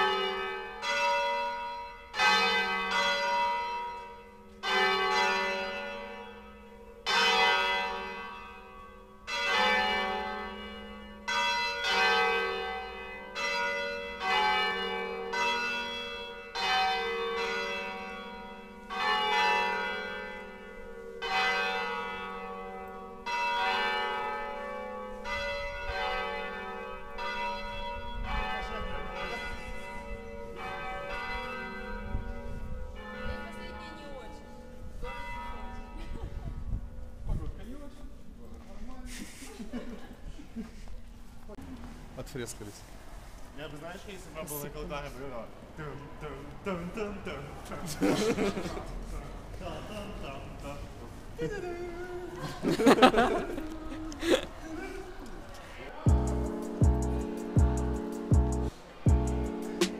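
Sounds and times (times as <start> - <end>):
church bells ringing: 0.0 - 37.3, 56.0 - 59.9.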